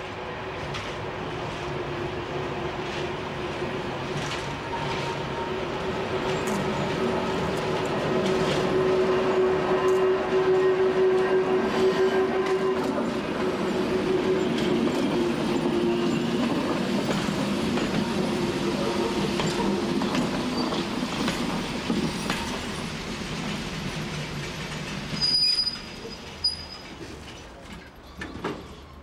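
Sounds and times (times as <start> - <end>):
wheels rumbling on rails: 0.0 - 29.0
train brake squeal: 19.1 - 21.0, 25.1 - 27.2.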